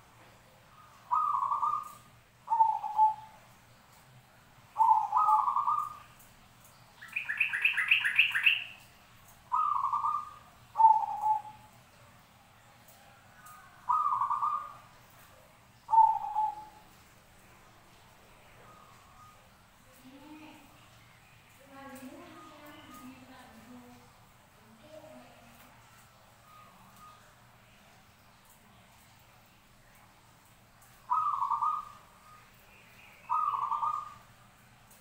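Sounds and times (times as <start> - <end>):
doves cooing: 1.0 - 3.3, 4.8 - 6.0, 9.5 - 11.7, 13.4 - 14.8, 15.9 - 16.8, 31.1 - 32.1, 33.3 - 34.2.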